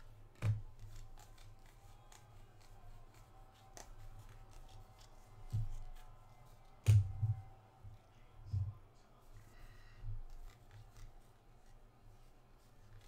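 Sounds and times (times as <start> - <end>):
trading cards flicking and sliding: 0.0 - 7.2.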